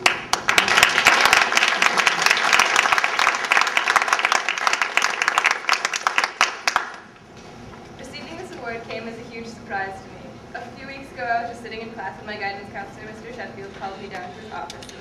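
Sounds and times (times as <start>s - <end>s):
audience applauding: 0.0s - 7.1s.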